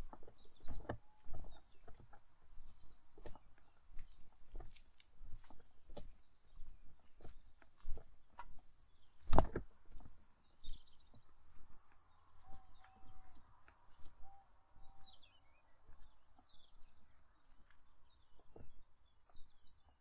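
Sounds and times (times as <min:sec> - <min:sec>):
footsteps crunching on path: 0:00.0 - 0:20.0
small birds chirping: 0:00.0 - 0:20.0.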